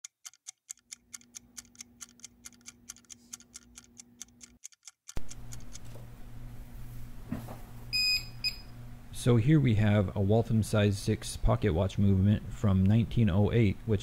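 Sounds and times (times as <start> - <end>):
pocket watch ticking: 0.0 - 5.9
steady low hum: 5.2 - 14.0.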